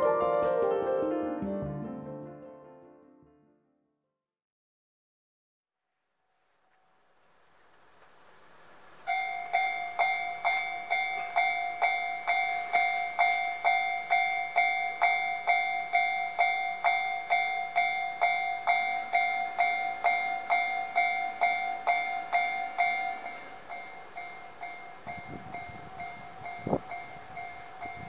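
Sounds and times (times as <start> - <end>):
level crossing alarm dinging: 9.1 - 28.0.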